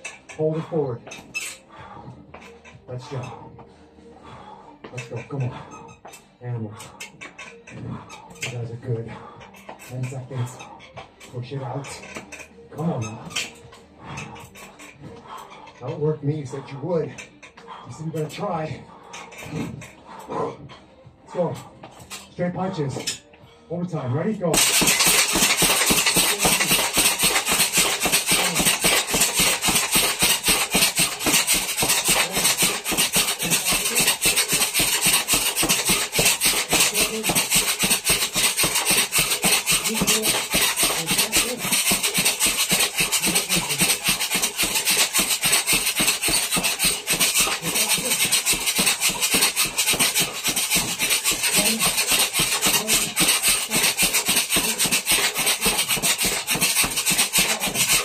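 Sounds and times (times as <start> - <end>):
boxing gloves hitting punching bag: 24.6 - 58.0.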